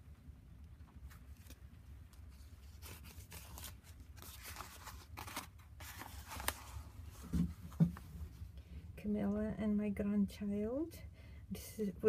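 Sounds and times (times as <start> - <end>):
paper pages rustling and crinkling: 1.0 - 8.1.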